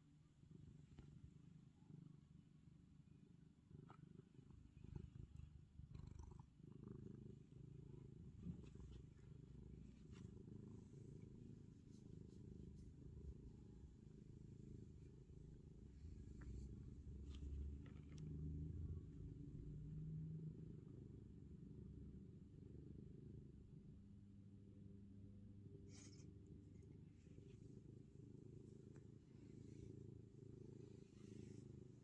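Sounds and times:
cat purring: 0:00.0 - 0:32.0
faint scratchy rustles: 0:03.9 - 0:18.4, 0:25.8 - 0:32.0.

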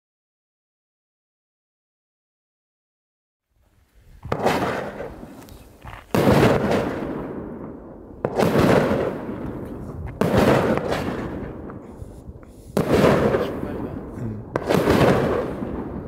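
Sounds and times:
firework shots banging: 0:04.2 - 0:16.0.

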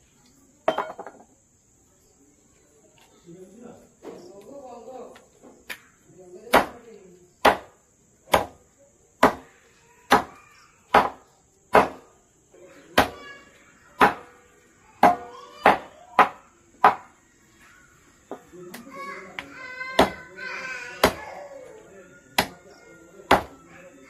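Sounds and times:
knife chopping on wooden board: 0:07.4 - 0:07.7, 0:10.9 - 0:12.0.

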